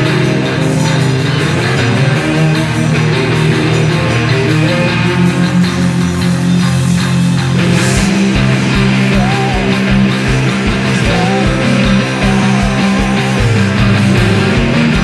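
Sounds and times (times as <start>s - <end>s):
heavy distorted guitars: 0.0s - 15.0s
pounding drum beat: 0.0s - 15.0s
cymbal crash: 5.2s - 15.0s.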